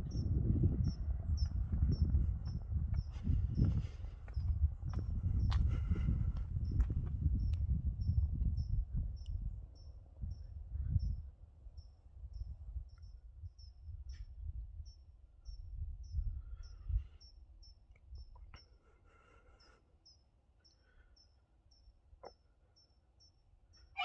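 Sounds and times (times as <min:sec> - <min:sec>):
insect chirps: 0:19.5 - 0:24.0.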